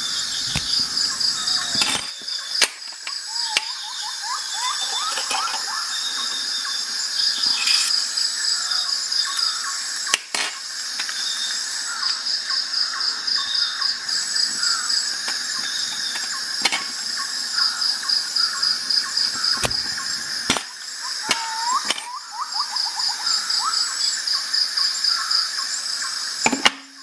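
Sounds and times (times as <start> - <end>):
small bird-like chirps: 0.0 - 2.6, 3.2 - 8.0, 21.0 - 24.2
insects chirping: 0.0 - 27.0.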